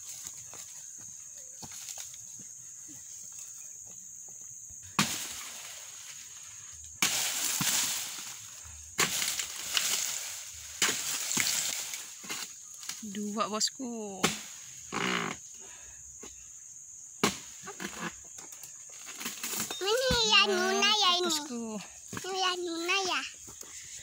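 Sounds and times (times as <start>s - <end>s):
fronds rustling: 4.8s - 15.8s, 17.2s - 24.0s
blade chopping fronds: 5.0s - 5.8s, 7.0s - 8.4s, 9.0s - 13.1s, 14.2s - 14.7s, 17.2s - 18.1s.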